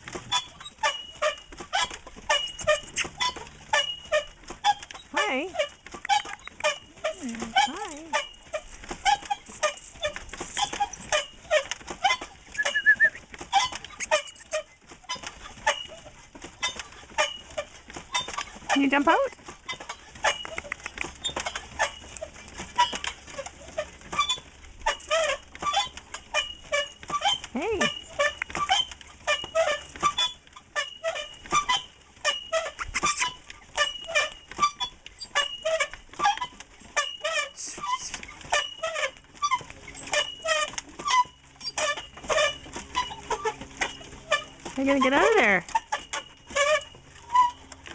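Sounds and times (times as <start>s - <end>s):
wooden exercise wheel squeaking: 0.0s - 47.9s
dogs barking and yipping: 32.7s - 33.3s.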